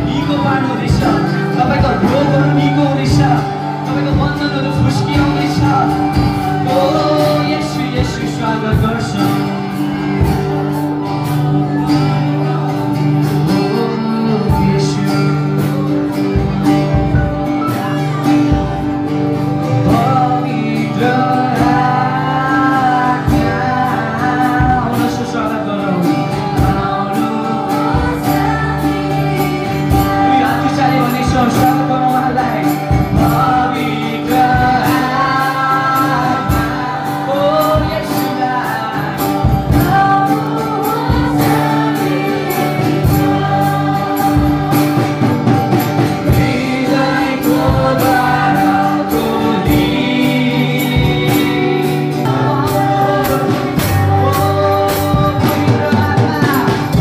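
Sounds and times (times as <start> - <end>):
amplified acoustic guitar: 0.0 - 57.0
man singing: 0.0 - 57.0
woman singing: 26.0 - 31.3, 33.8 - 45.6, 46.2 - 57.0.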